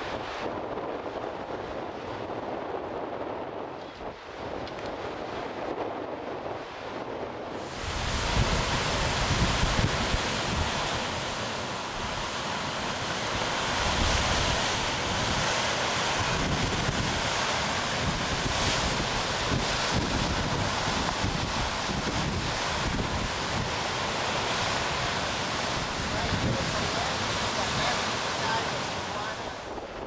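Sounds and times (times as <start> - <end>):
wind buffeting microphone: 0.0 - 30.0
waves breaking on rocks: 7.6 - 30.0.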